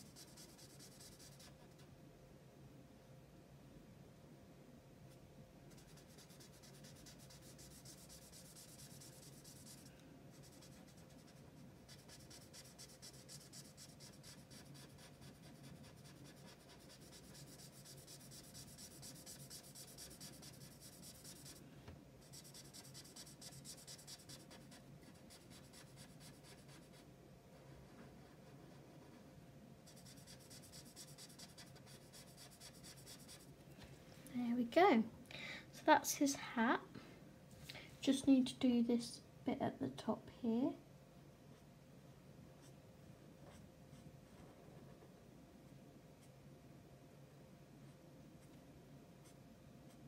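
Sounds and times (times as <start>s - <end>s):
marker scratching on paper: 0.0s - 1.6s, 5.7s - 21.6s, 22.2s - 27.0s, 29.9s - 33.5s
faint steady hum: 0.0s - 50.0s.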